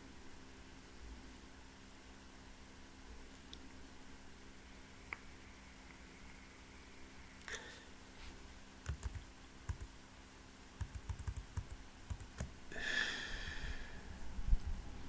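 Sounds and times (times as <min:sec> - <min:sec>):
faint clicks and taps: 0:08.8 - 0:09.9, 0:10.8 - 0:12.5.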